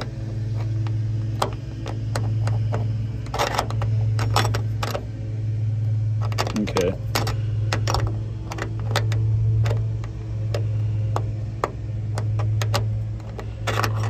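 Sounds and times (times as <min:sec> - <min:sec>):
steady low hum: 0:00.0 - 0:14.0
light metal clicks and taps: 0:06.2 - 0:14.0.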